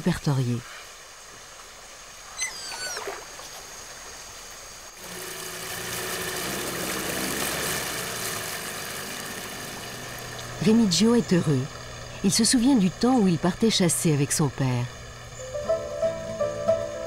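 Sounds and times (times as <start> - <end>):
water trickling and lapping: 0.6 - 12.8
outboard motor running: 5.0 - 17.0
high gliding chirps: 15.0 - 17.0.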